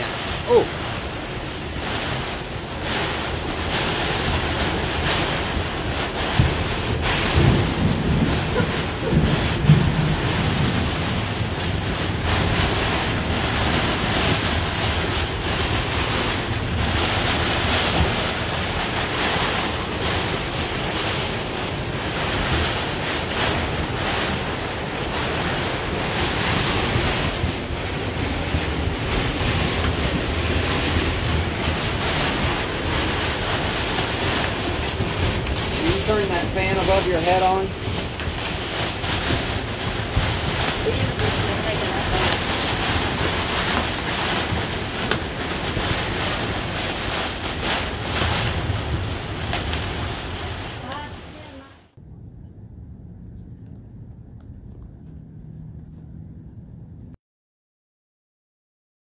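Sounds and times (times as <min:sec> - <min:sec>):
rain beating on vinyl: 0:00.0 - 0:52.0
storm wind gusting: 0:00.0 - 0:53.2.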